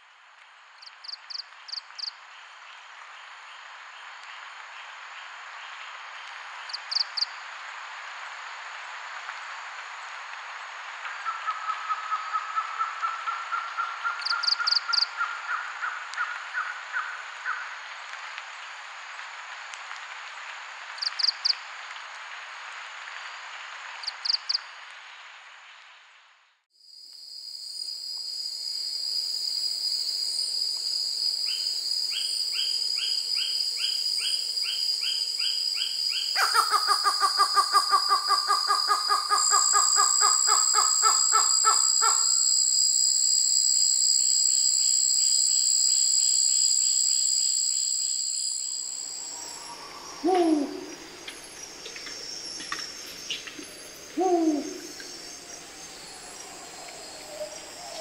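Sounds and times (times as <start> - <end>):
insect hiss: 0.0 - 58.0
shrill insect tones: 26.9 - 58.0
bird chirping: 49.2 - 58.0.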